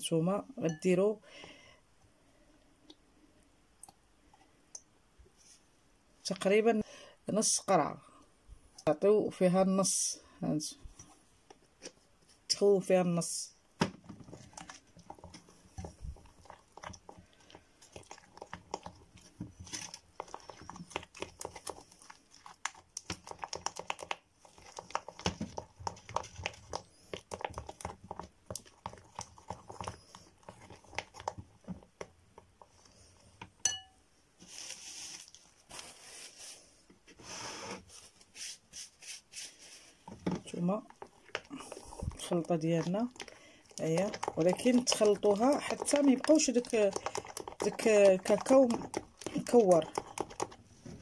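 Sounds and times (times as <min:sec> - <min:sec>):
spatula scraping glass bowl: 0:40.9 - 0:50.6.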